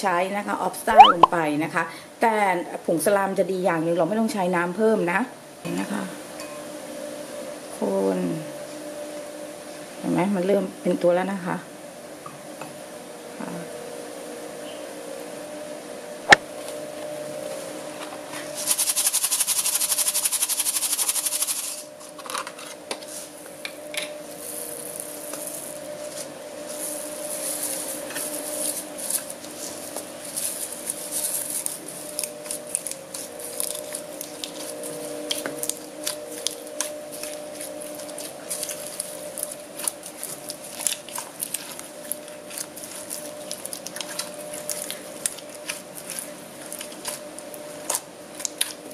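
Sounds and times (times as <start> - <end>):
slime squelching: 1.0 - 1.3.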